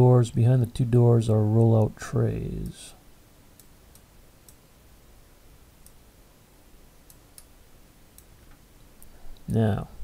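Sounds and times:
faint room hiss: 0:00.0 - 0:10.0
computer mouse clicks: 0:03.6 - 0:04.6.

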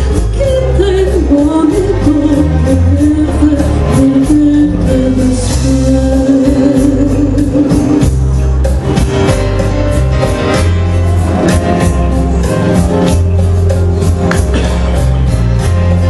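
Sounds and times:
woman singing into microphone: 0:00.0 - 0:08.1
amplified backing music: 0:00.0 - 0:16.0.

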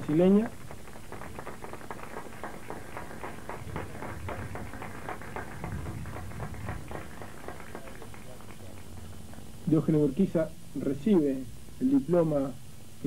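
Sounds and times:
crowd applauding: 0:00.0 - 0:09.5.

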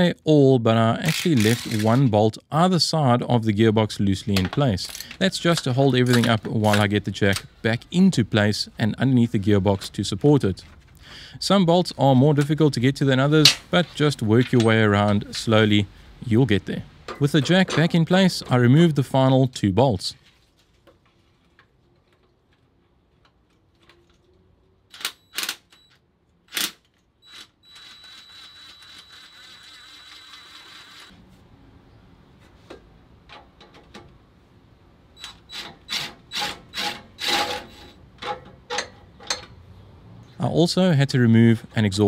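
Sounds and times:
power tool whirring: 0:01.1 - 0:01.8, 0:27.3 - 0:31.1.

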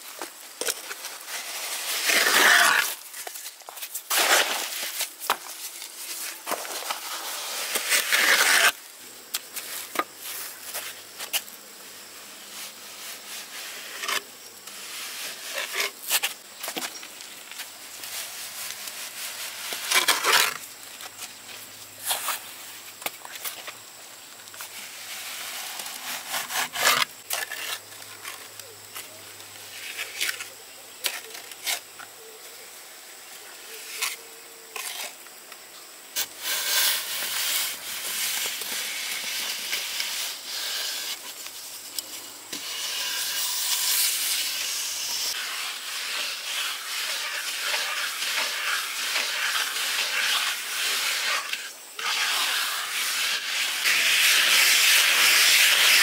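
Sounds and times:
rasping scrape: 0:01.2 - 0:03.4, 0:06.2 - 0:08.8, 0:24.9 - 0:27.8.

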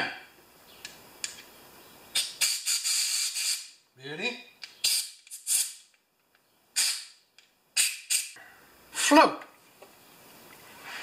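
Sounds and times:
air blow gun blasts: 0:06.8 - 0:07.2.

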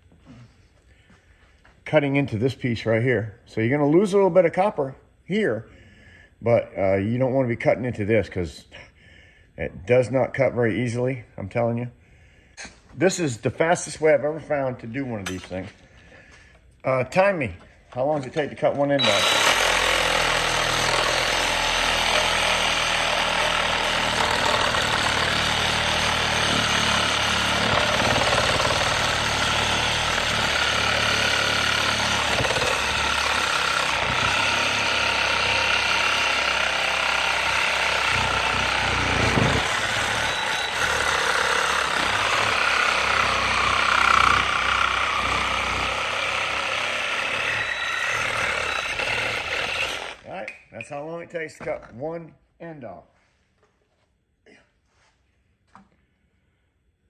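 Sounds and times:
reciprocating saw cutting metal: 0:18.3 - 0:50.3.

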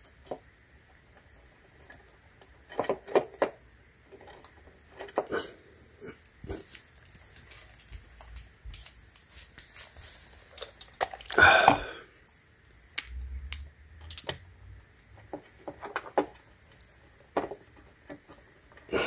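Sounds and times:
hands rustling: 0:06.1 - 0:12.0.

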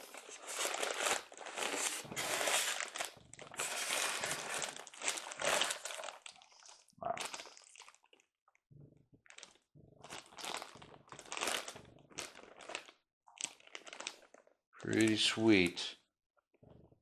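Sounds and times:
plastic and foam packaging rustling: 0:00.0 - 0:06.4, 0:09.3 - 0:15.3.

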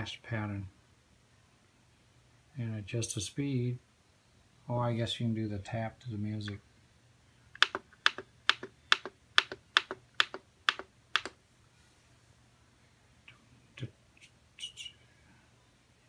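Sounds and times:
push button clicking: 0:07.6 - 0:11.4.

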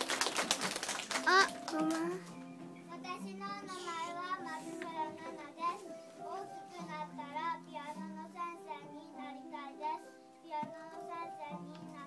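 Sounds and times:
instrumental accompaniment: 0:00.0 - 0:12.0
children singing: 0:02.9 - 0:12.0.

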